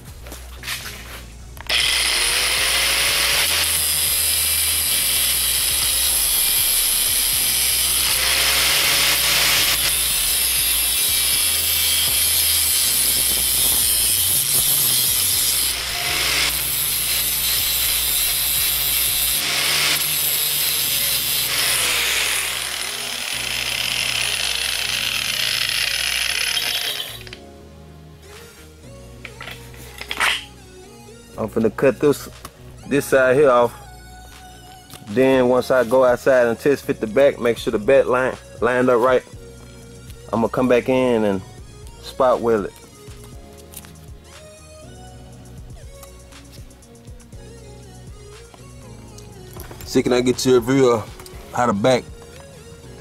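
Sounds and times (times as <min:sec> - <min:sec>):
angle grinder cutting metal: 0:01.7 - 0:27.4.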